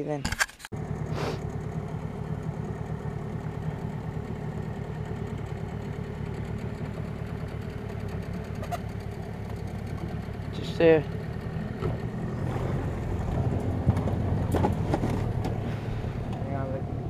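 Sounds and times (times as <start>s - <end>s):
outboard motor running: 0.7s - 17.0s.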